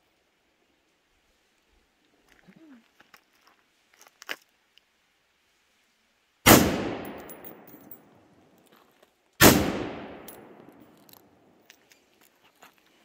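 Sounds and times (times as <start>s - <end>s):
rifle shots with echo: 6.5s - 7.8s, 9.4s - 10.9s.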